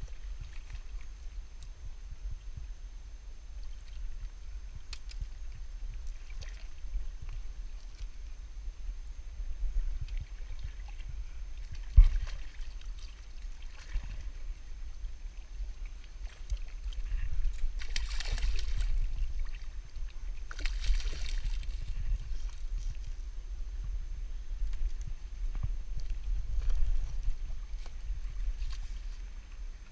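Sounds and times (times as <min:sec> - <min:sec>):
wind rumble on microphone: 0:00.0 - 0:29.9
water splashing at rocks: 0:17.8 - 0:19.0.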